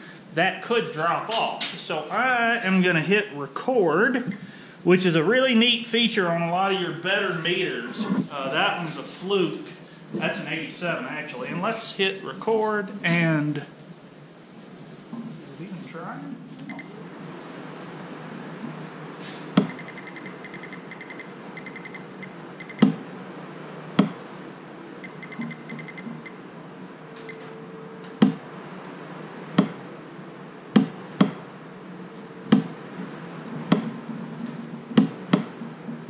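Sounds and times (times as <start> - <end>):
rapid high-pitched beeps: 19.6 - 23.0, 25.0 - 26.4.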